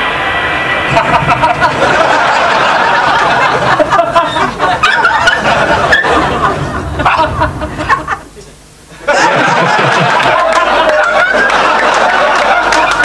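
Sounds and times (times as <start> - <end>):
audience laughing: 0.7 - 13.0.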